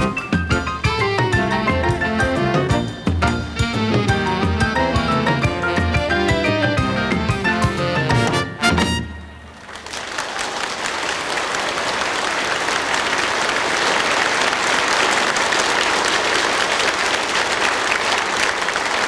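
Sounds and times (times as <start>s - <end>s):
audience applauding: 9.5s - 19.0s.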